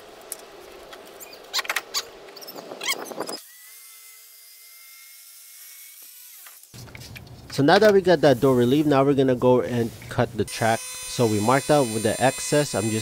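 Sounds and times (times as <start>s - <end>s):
circular saw whining: 10.5s - 13.0s.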